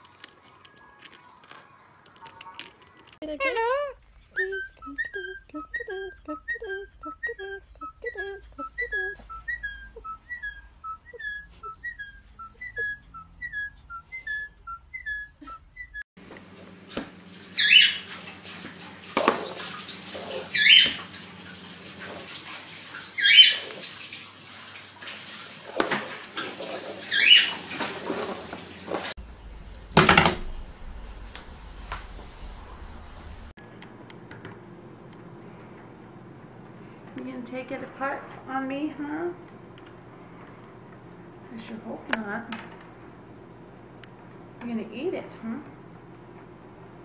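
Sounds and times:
cockatiel whistling: 4.2s - 16.0s, 17.6s - 18.0s, 20.5s - 21.0s, 23.2s - 23.6s, 27.1s - 27.5s
shrill lovebird chirps: 8.1s - 16.0s, 17.6s - 18.0s.

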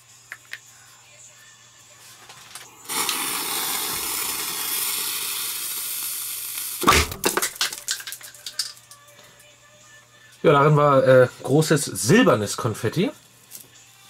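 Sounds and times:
fuse hissing: 2.5s - 7.0s.

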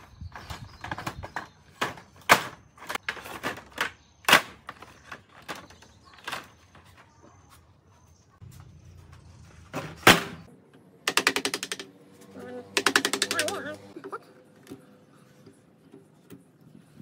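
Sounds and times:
wooden planks knocking together: 12.8s - 13.6s.

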